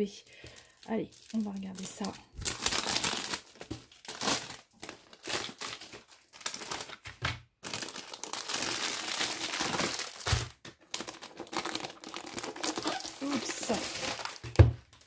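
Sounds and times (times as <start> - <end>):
plastic packaging crinkling: 0.0 - 15.0.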